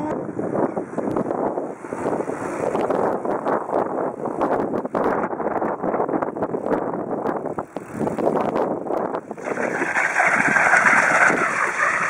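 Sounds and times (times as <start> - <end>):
wind buffeting microphone: 0.0 - 12.0
bicycle tyres rolling on paving: 1.1 - 12.0.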